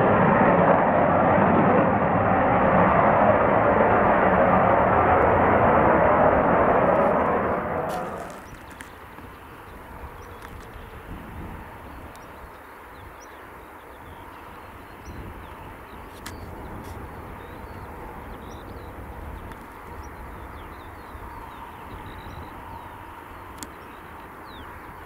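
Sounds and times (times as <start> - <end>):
wind rumbling on microphone: 0.0 - 25.0
small birds chirping: 7.9 - 25.0.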